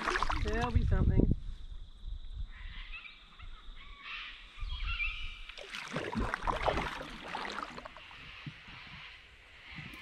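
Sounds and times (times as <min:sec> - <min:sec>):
paddle splashing in river water: 0:00.0 - 0:00.8, 0:05.4 - 0:09.2
water gurgling: 0:00.0 - 0:00.8, 0:05.6 - 0:08.3.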